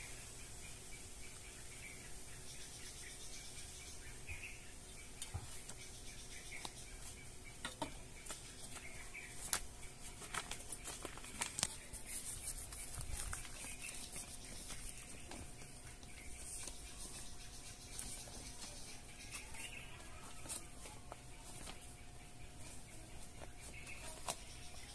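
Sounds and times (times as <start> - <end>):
plastic bag crackling: 8.7 - 24.9.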